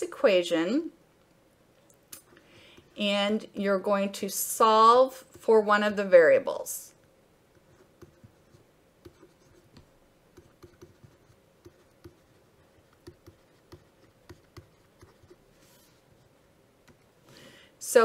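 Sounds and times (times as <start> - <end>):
pen writing on paper: 7.6 - 15.4.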